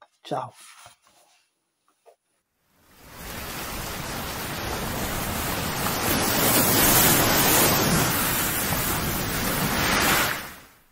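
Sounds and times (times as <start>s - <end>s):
rushing surf-like noise: 2.8s - 10.9s.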